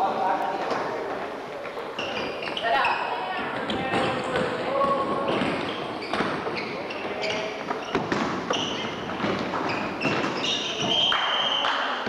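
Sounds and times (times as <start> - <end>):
sneaker squeaks: 0.4 - 12.0
ball bouncing on hardwood floor: 3.3 - 11.1.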